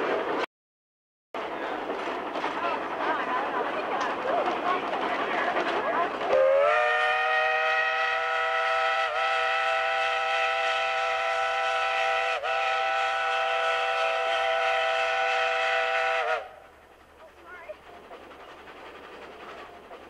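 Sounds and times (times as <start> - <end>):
steam locomotive whistle blast: 6.3 - 16.7.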